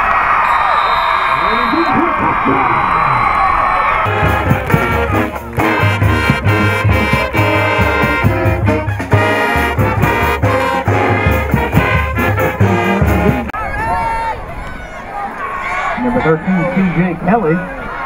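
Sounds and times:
brass band music: 0:04.0 - 0:13.6
drum beat: 0:04.1 - 0:13.5.

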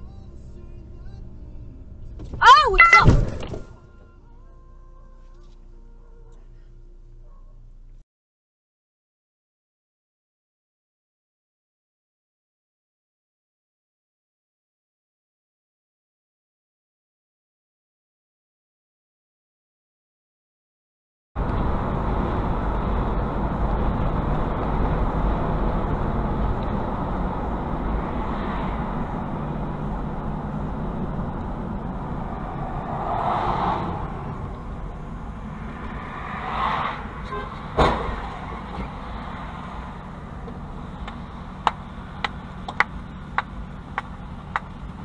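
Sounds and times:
road and engine noise: 0:00.0 - 0:08.0, 0:21.4 - 0:45.0.

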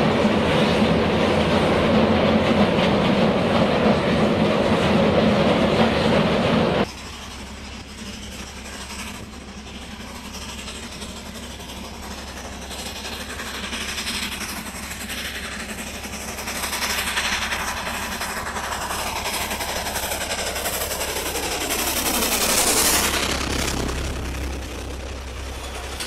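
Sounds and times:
steam locomotive exhaust beating: 0:00.0 - 0:26.0
running-gear clatter: 0:06.8 - 0:26.0.

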